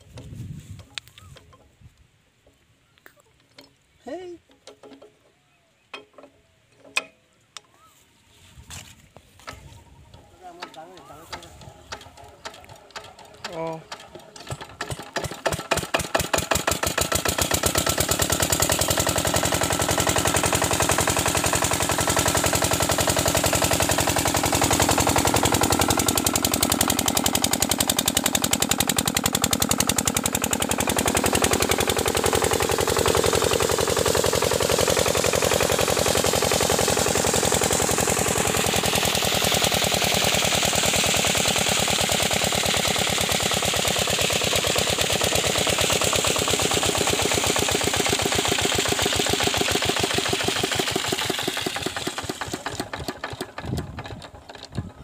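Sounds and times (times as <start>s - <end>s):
diesel engine knocking: 10.6s - 55.0s
water rushing from pipe: 16.3s - 52.6s.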